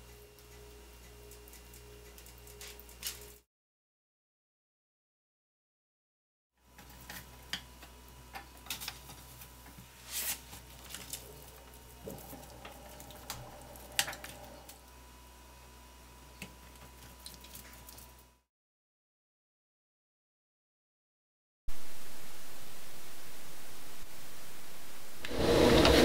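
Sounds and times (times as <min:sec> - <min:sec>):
steady low hum: 0:00.0 - 0:03.4, 0:06.7 - 0:18.4, 0:21.7 - 0:26.0
meat crackling on a grill: 0:06.8 - 0:14.8.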